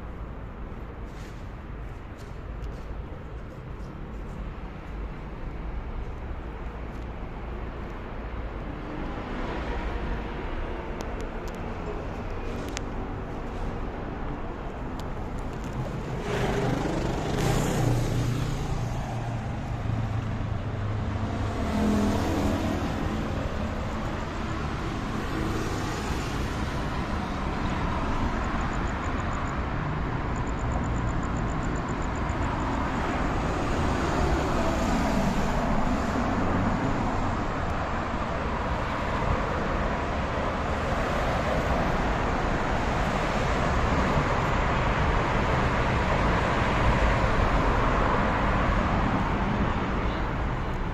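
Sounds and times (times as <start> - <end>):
road traffic passing: 0.0 - 50.9.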